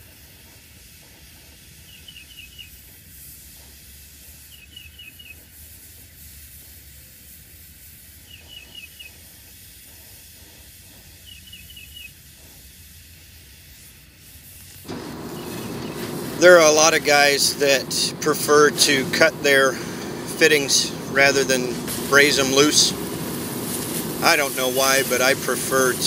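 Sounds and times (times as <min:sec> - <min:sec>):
torch flame hissing: 0:09.1 - 0:26.0
high chirps: 0:14.9 - 0:18.2.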